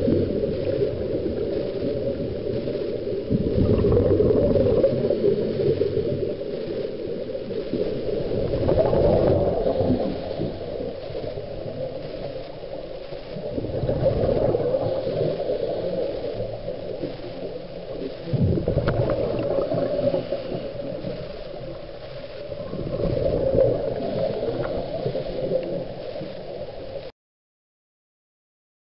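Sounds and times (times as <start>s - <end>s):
underwater regulator bubbles: 0.0s - 27.1s.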